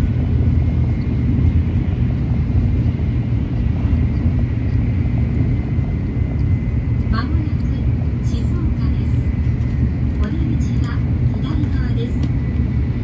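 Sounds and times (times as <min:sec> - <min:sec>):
train rumble inside cabin: 0:00.0 - 0:13.0.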